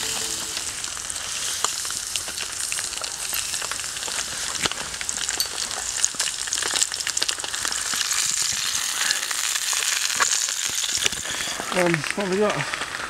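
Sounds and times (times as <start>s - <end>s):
sausages sizzling in a frying pan: 0.0s - 13.0s.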